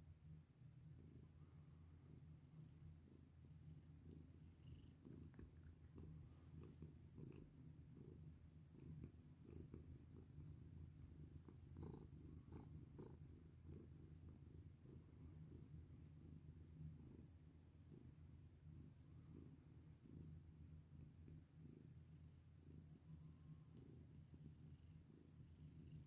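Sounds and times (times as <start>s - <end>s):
cat purring: 0.4s - 26.0s
faint rustles and ticks: 3.7s - 22.6s.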